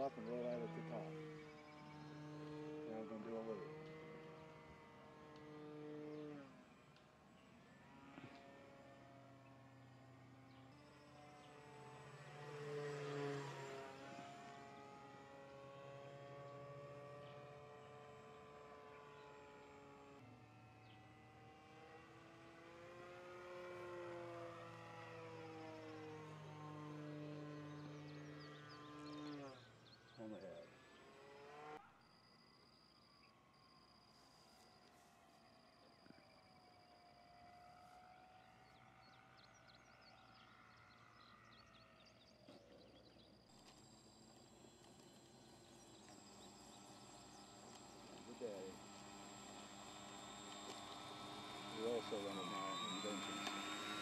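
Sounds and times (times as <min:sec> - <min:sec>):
model airplane motor whine: 0:00.0 - 0:54.0
faint bird chirps: 0:31.8 - 0:48.8.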